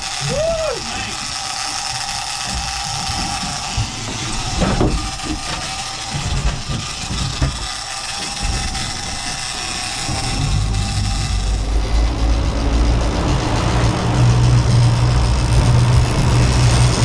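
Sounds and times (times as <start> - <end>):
fishing reel drag whining: 0.0 - 17.0
low rumble: 8.4 - 17.0.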